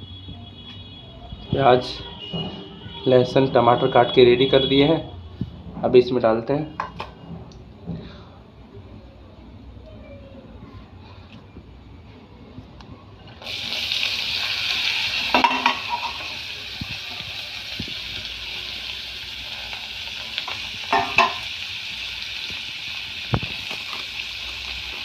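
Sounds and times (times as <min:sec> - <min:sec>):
vegetables sizzling in hot oil: 0:13.4 - 0:25.0
knocks against a pan: 0:20.9 - 0:21.4.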